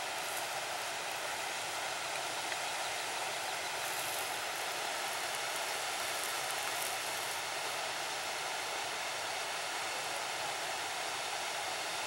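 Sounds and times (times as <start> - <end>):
waterfall rushing: 0.0 - 12.0.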